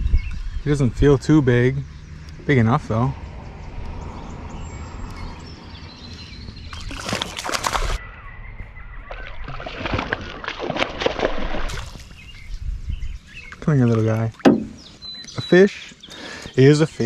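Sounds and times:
fish splashing in water: 6.7s - 8.0s, 9.1s - 12.1s.

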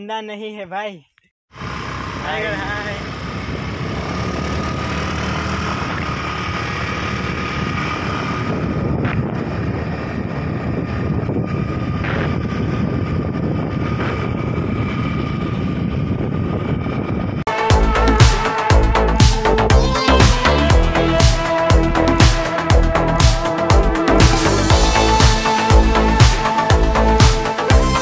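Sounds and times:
motorbike engine running: 1.5s - 28.0s
wind on microphone: 3.2s - 17.5s.

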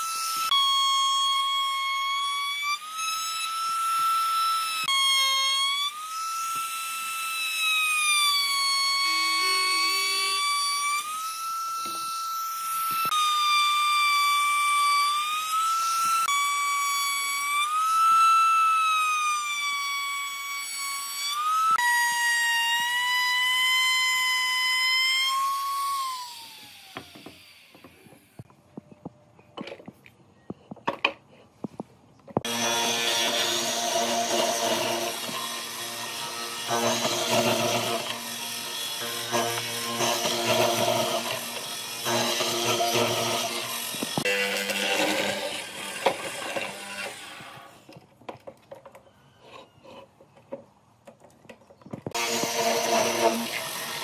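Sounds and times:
power tool motor whining: 22.7s - 28.5s, 32.4s - 48.0s, 52.0s - 54.0s.

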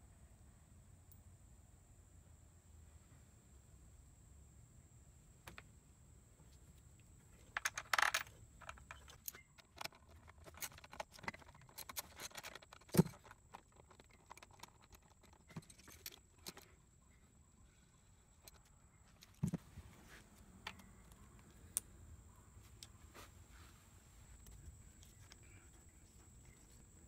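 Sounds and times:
metal tools clinking and rattling: 7.4s - 16.8s.

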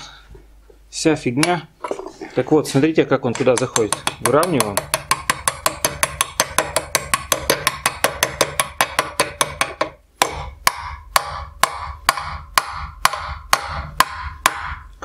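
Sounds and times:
hammer tapping metal: 3.3s - 15.0s
ringing hammer knocks: 3.4s - 14.9s.

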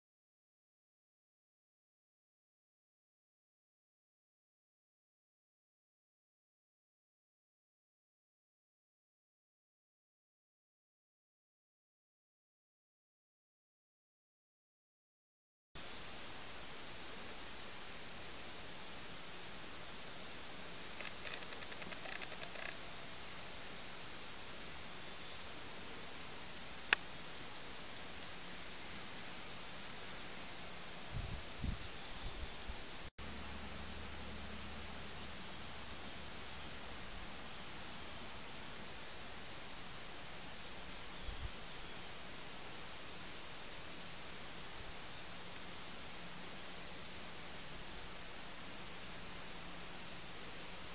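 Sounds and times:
crickets chirping: 15.8s - 50.9s.

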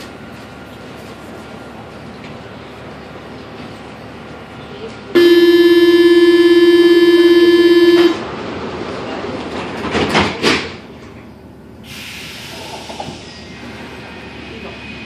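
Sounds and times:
door-closing warning buzzer: 5.2s - 8.2s.

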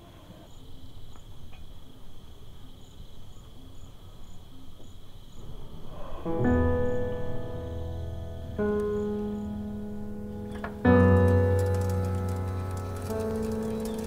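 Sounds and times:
crickets chirping: 0.0s - 14.0s
low rumble: 5.4s - 10.6s.

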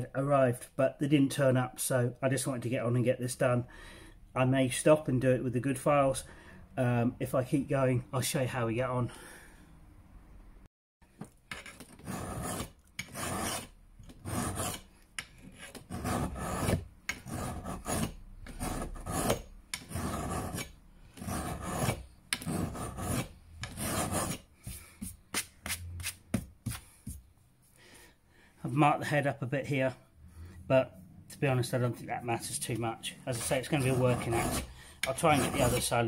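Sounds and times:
file rasping on steel: 11.5s - 24.5s, 33.3s - 36.0s.

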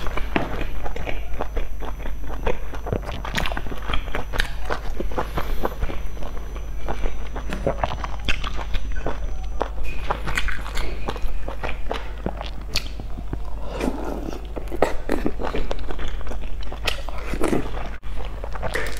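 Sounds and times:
wet chewing and slurping: 0.0s - 18.9s.

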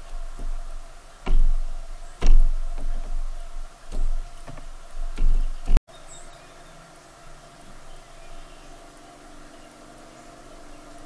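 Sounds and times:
animal knocking on feeder: 1.2s - 3.2s.

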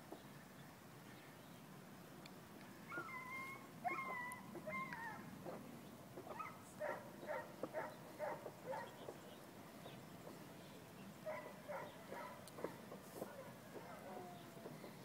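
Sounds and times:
dog whining: 2.9s - 5.2s.

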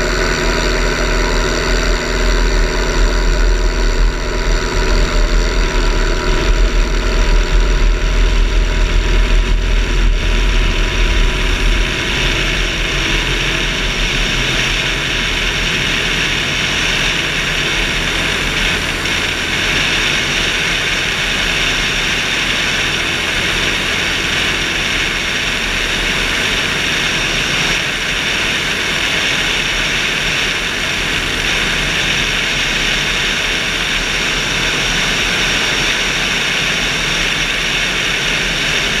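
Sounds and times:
heavy low rumble: 0.0s - 39.0s
motorglider engine and propeller: 0.0s - 39.0s.

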